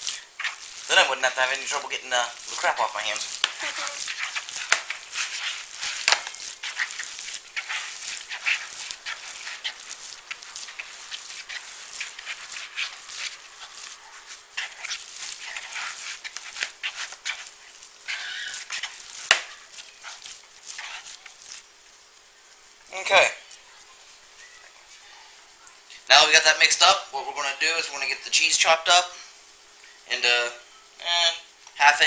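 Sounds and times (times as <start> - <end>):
hands squelching wet meat mixture: 0.0 - 21.8.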